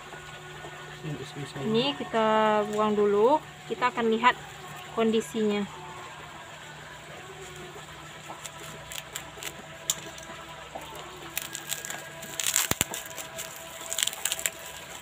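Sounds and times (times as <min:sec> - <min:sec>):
plastic bag and paper crinkling: 0:08.2 - 0:15.0.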